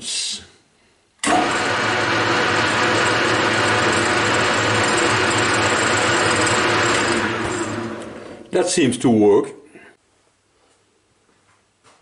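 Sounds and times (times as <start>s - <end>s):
lathe gears meshing whir: 1.2s - 8.5s
low motor hum: 1.5s - 8.5s.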